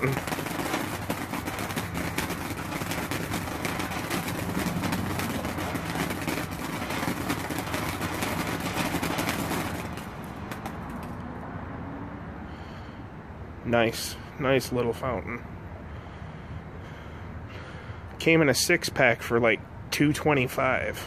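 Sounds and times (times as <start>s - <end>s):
firework fountain hissing and crackling: 0.0s - 11.3s.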